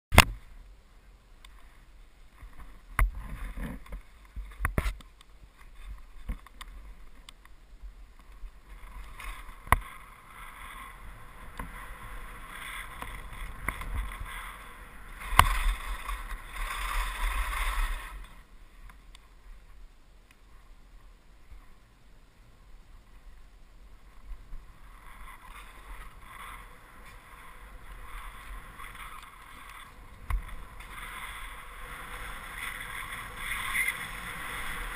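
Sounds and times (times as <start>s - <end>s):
skis swishing through snow: 8.4s - 19.7s, 24.0s - 34.9s.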